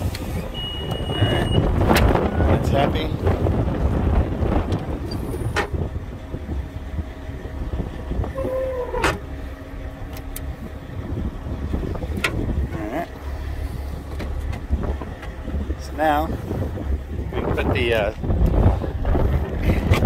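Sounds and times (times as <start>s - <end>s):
diesel truck engine idling: 0.0s - 19.9s.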